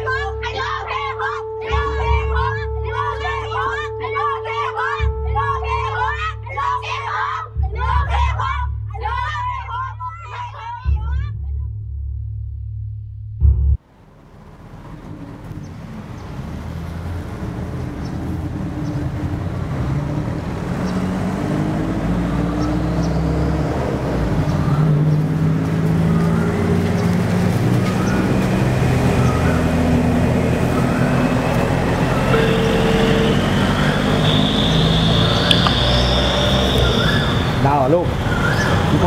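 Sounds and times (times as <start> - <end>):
road traffic rumble: 13.8 - 39.0.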